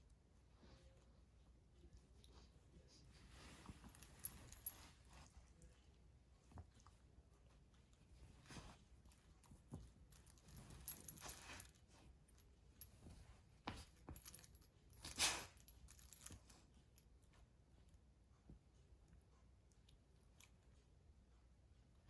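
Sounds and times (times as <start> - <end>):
light clicks and clinks: 3.3 - 5.7, 8.4 - 17.3.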